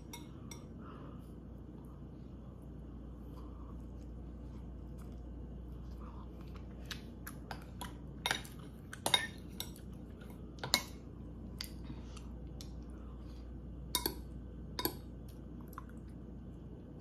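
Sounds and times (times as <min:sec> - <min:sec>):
metal spoon clinking on glass bowl: 0:00.0 - 0:00.7, 0:08.2 - 0:09.8.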